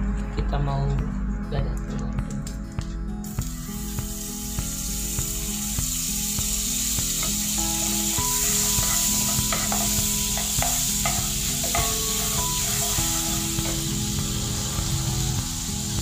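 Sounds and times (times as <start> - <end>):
food sizzling in hot oil: 3.2 - 16.0
wooden spatula knocking pan: 8.5 - 13.0.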